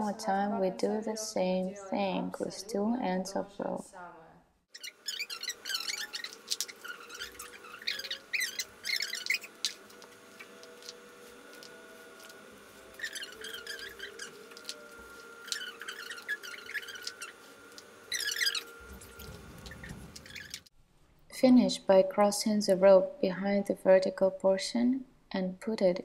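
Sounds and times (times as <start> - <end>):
rope rustling and squeaking: 4.7 - 20.7.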